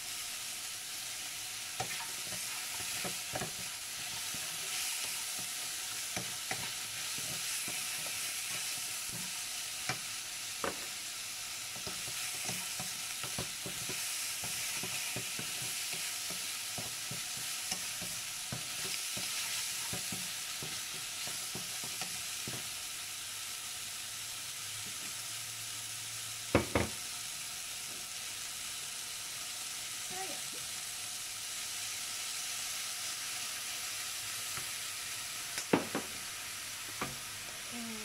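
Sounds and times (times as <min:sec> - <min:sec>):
chicken sizzling in a wok: 0:00.0 - 0:38.0
spatula scraping a pan: 0:01.6 - 0:11.0, 0:11.7 - 0:22.6.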